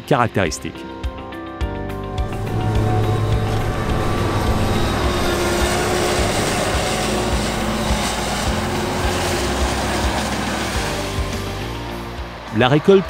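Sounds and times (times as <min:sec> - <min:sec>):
diesel engine running under load: 0:02.2 - 0:12.1.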